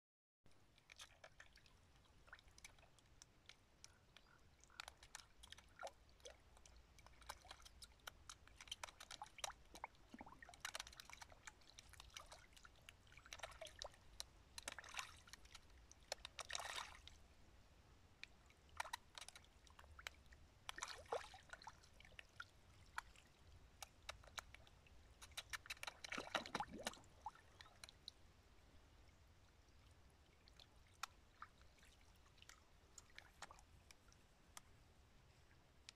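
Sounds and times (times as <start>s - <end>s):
fish splashing at water surface: 25.2s - 28.0s.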